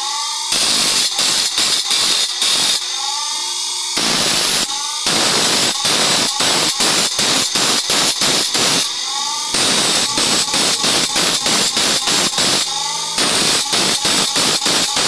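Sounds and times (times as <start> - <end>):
grinder wheel grinding steel: 7.4 - 15.0.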